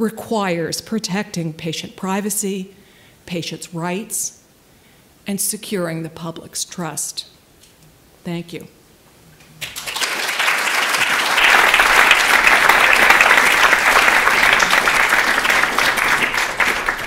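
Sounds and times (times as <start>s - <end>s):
audience applauding: 9.6s - 17.0s.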